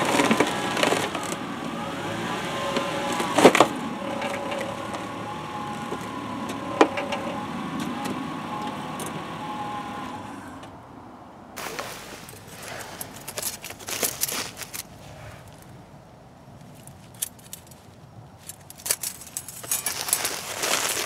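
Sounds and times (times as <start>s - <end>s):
metal hose clamps jingling: 12.2s - 14.9s, 16.7s - 21.0s.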